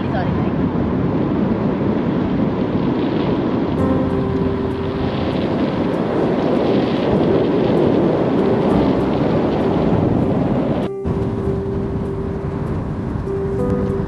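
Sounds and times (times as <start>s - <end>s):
car road noise: 0.0s - 14.0s
wind rushing: 0.0s - 14.0s.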